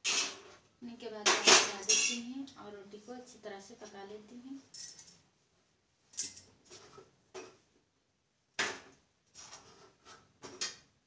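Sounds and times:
metal tongs clinking on iron pan: 1.6 - 2.2.

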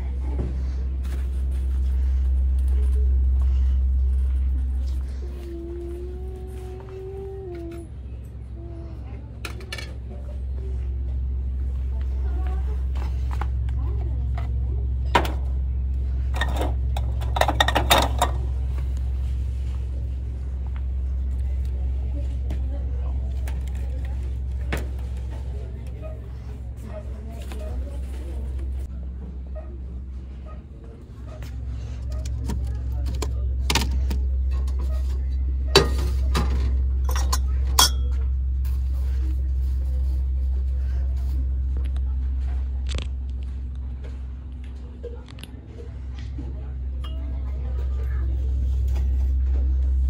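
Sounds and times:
steady low hum: 0.0 - 50.0
plastic cups clattering on metal: 16.3 - 18.5.

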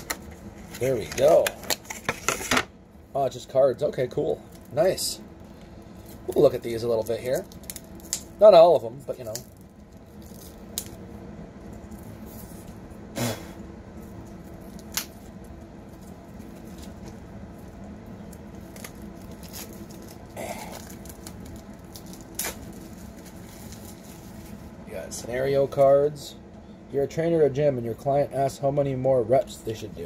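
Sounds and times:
game cards crinkling and clicking: 0.0 - 2.7
low hum: 0.0 - 30.0.

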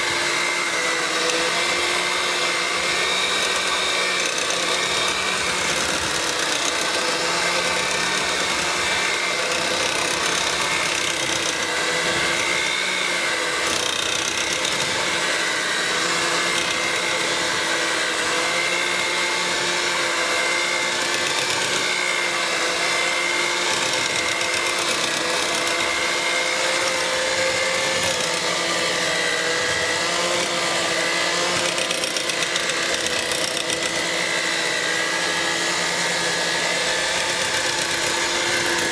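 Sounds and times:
electric mixer whining: 0.0 - 38.9.

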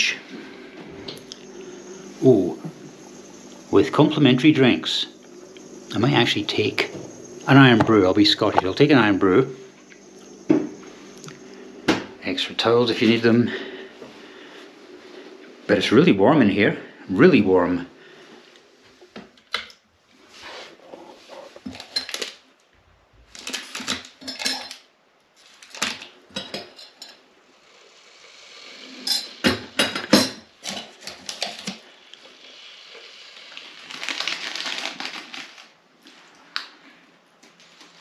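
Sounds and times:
steady hiss: 0.0 - 19.2, 24.2 - 38.0
sachets rustling: 23.2 - 24.3, 33.5 - 36.3
mugs and teaspoons clinking: 24.2 - 24.8, 26.3 - 27.2, 29.0 - 31.8.

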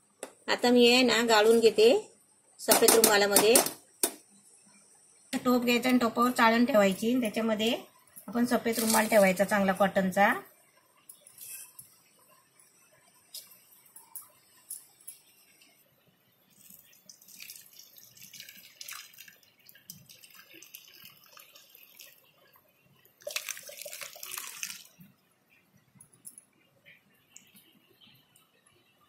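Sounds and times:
liquid splashing onto cloth: 16.6 - 22.3, 23.2 - 25.0.

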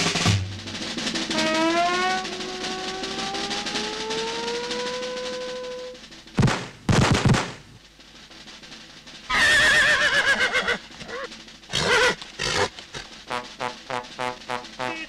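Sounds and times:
loud crashes: 0.0 - 7.8
cartoon horse neighing: 9.3 - 12.8.

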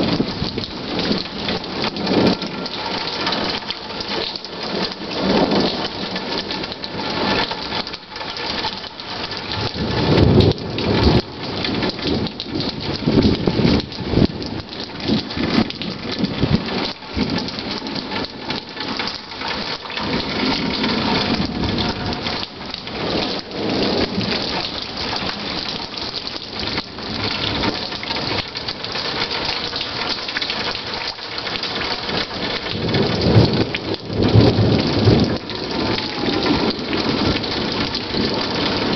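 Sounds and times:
steady rain falling: 0.0 - 38.9
thunder rumbling: 0.0 - 38.9.

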